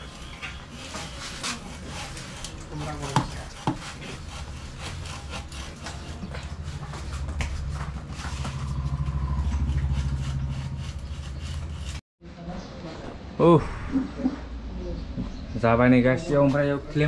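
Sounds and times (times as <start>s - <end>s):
motorcycle engine running: 7.2s - 11.9s.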